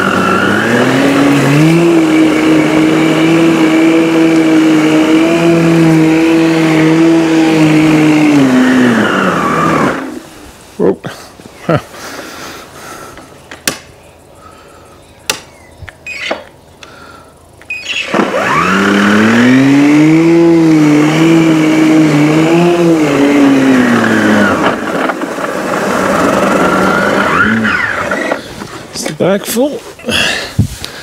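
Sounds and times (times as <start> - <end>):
electric lawn mower humming: 0.0 - 10.6, 16.1 - 28.9.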